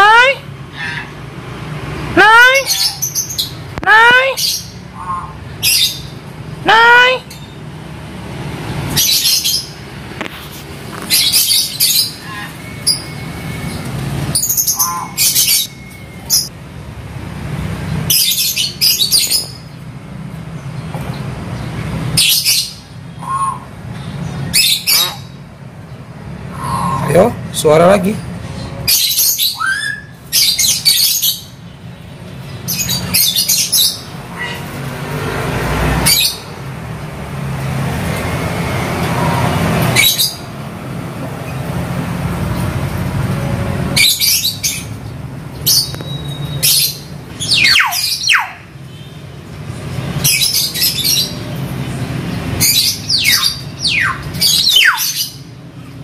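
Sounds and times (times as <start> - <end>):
myna bird squawks and whistles: 4.5 - 6.0, 23.2 - 23.7, 45.7 - 48.6.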